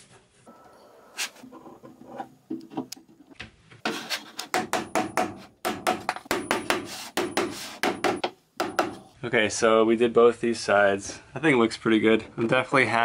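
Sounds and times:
handling and rubbing: 0.0s - 4.6s, 6.2s - 8.0s
hammer tapping wood: 4.5s - 9.0s.

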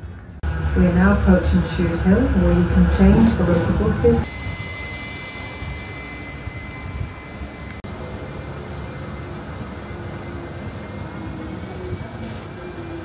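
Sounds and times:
tram wheels and motors rumbling: 0.0s - 13.0s
faint whine: 0.1s - 12.8s.

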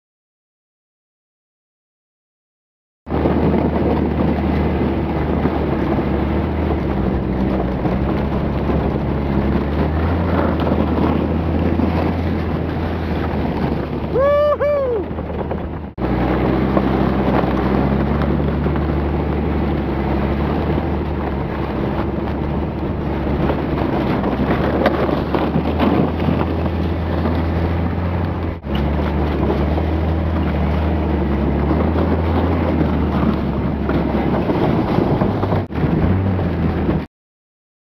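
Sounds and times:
car engine drone: 3.1s - 37.1s
wind buffeting microphone: 3.1s - 37.1s
person yelling: 14.1s - 15.1s.

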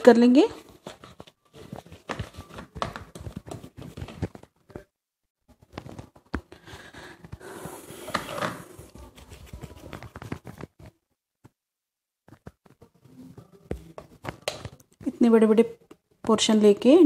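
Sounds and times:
hands kneading dough: 8.8s - 11.0s.

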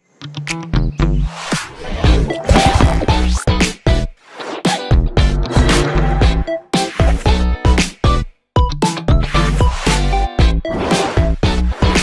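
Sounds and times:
upbeat funk music: 2.1s - 4.1s, 4.7s - 12.0s.

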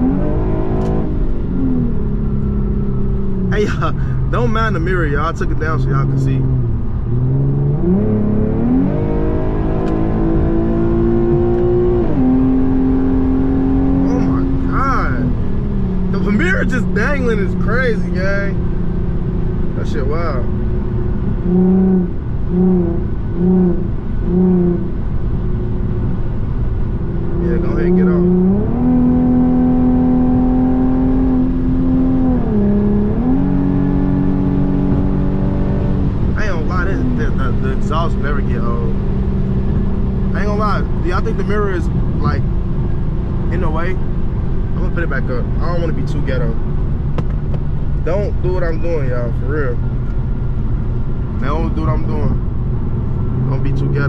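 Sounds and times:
car engine accelerating hard: 0.0s - 54.0s.

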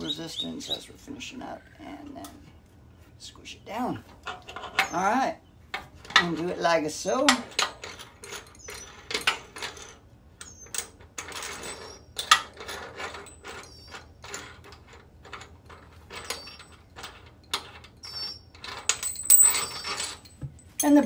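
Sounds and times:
birds chirping: 0.0s - 7.1s, 8.5s - 9.2s, 10.4s - 10.8s.

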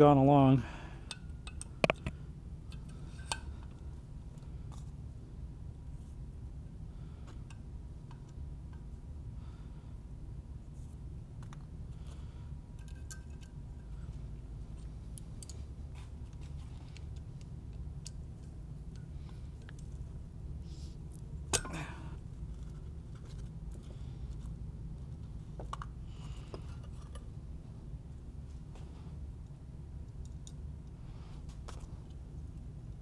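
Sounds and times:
steady low hum: 0.0s - 33.0s
light metallic clicks and clinks: 1.0s - 3.8s, 12.8s - 15.7s.

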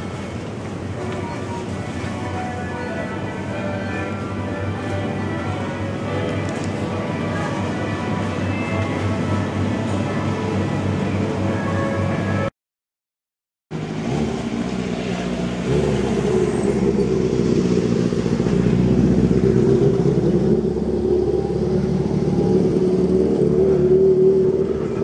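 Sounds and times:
vehicle running noise: 0.0s - 12.5s, 13.7s - 25.0s
music: 1.2s - 12.5s.

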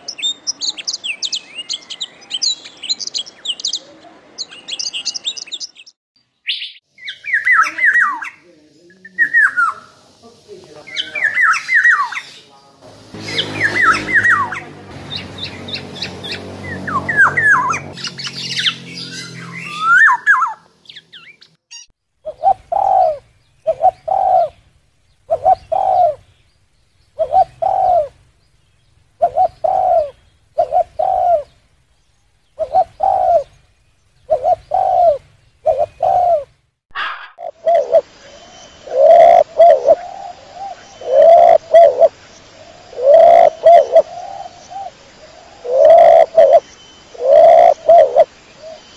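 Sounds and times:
steady hiss: 8.4s - 13.8s, 37.6s - 48.9s
pigeons cooing: 13.2s - 20.6s, 22.3s - 24.7s, 25.3s - 26.5s, 27.2s - 28.2s, 29.2s - 31.6s, 32.6s - 33.6s, 34.2s - 38.1s, 38.9s - 42.1s, 42.9s - 46.6s, 47.2s - 48.8s
bird whistled calls: 13.2s - 21.5s, 27.2s - 28.2s, 32.5s - 33.5s, 34.2s - 42.1s, 43.0s - 44.9s, 45.7s - 48.9s
dove cooing: 22.3s - 24.6s, 25.3s - 26.3s, 27.2s - 28.2s, 29.2s - 31.6s, 32.6s - 33.6s, 34.3s - 36.5s, 37.4s - 38.1s, 38.8s - 42.1s, 42.9s - 46.6s, 47.2s - 48.8s.

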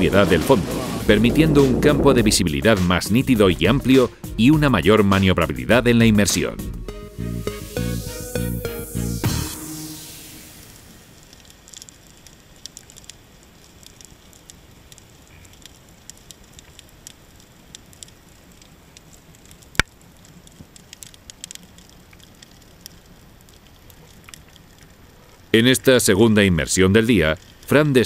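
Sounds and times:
underwater crackle of small clicks: 11.2s - 25.5s, 27.4s - 27.7s.

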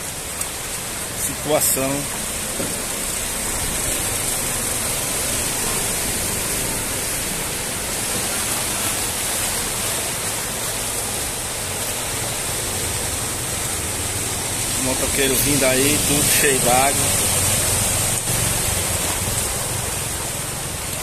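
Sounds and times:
heavy rain hissing: 0.0s - 21.0s
running floodwater: 0.0s - 21.0s.

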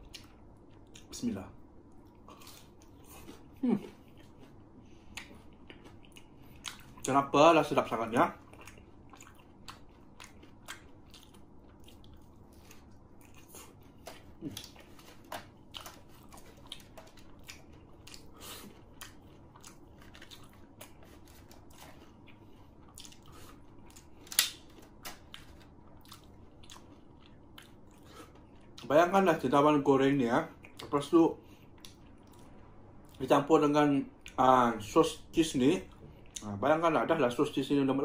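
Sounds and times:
crunchy chewing: 8.3s - 28.9s.

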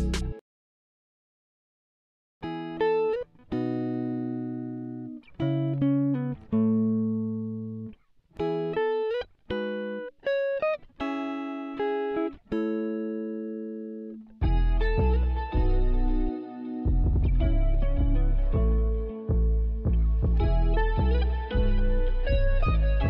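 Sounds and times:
bass line: 0.0s - 0.4s, 14.4s - 23.0s
plucked guitar melody: 0.0s - 0.4s, 2.4s - 23.0s.

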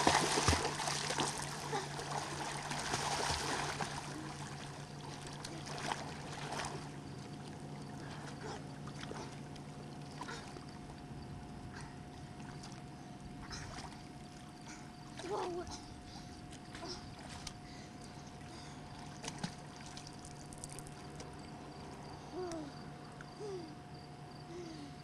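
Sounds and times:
children splashing in water: 0.0s - 4.5s, 5.2s - 6.9s
water lapping: 0.0s - 22.2s.

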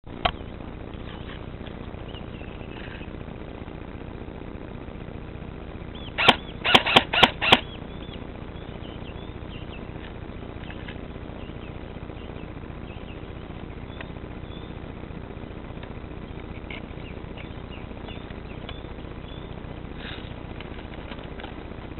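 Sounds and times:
faint bird chirps: 0.2s - 3.2s, 5.9s - 6.7s, 7.4s - 14.9s, 16.2s - 20.4s
sharp gunshots: 6.2s - 7.7s.

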